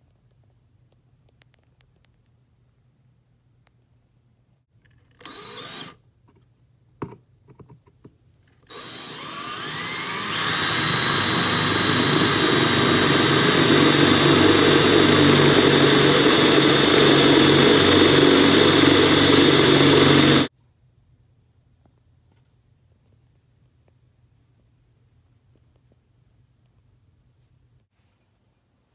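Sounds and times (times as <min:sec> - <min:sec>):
power drill boring steel: 0:05.2 - 0:06.0, 0:08.6 - 0:20.5.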